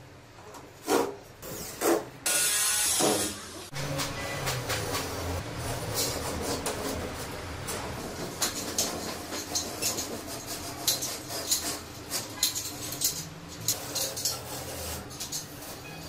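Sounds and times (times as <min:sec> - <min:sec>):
knife scraping plasterboard: 0:08.1 - 0:12.5, 0:13.7 - 0:16.0.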